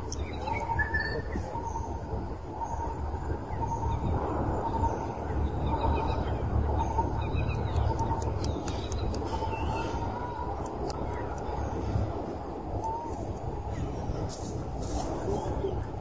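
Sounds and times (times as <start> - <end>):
steady low rumble: 0.0 - 16.0
faint high chirps: 12.8 - 15.9.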